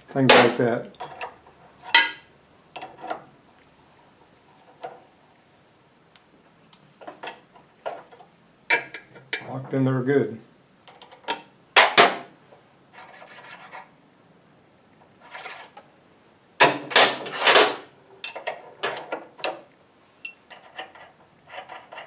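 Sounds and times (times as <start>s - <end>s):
metal scraping: 15.2s - 15.8s, 20.2s - 22.0s.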